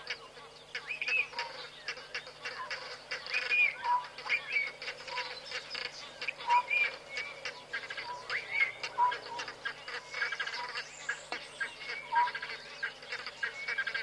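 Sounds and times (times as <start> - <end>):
birds calling: 0.0 - 14.0.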